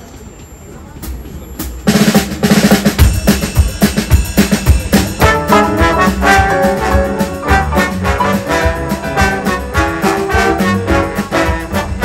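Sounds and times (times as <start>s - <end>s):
drum kit playing: 1.0s - 12.0s
trombone section chords: 5.0s - 12.0s.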